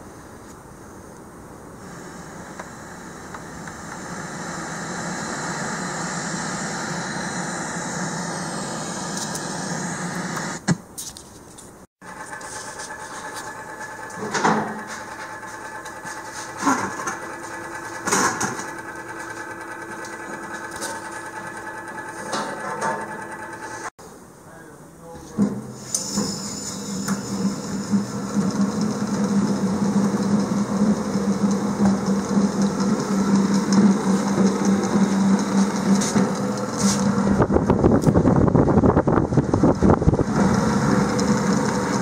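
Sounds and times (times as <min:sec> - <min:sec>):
box fan motor hum: 0:00.0 - 0:10.9, 0:12.0 - 0:23.9, 0:26.0 - 0:42.0
radio static hiss: 0:01.8 - 0:10.8.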